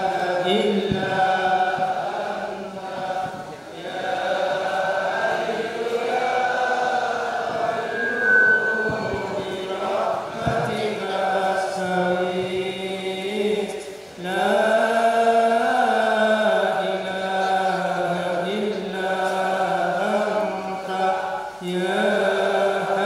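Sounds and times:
men chanting: 0:00.0 - 0:07.9.

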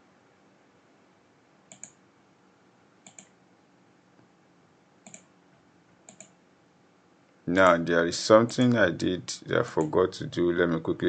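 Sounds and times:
mouse button clicking: 0:03.0 - 0:03.3.

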